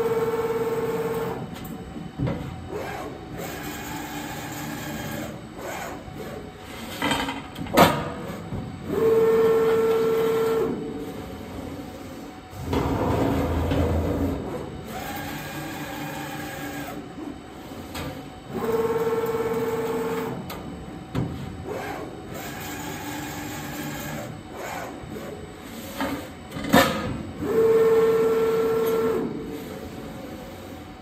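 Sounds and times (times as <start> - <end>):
sharp machine clack: 12.6 - 15.3.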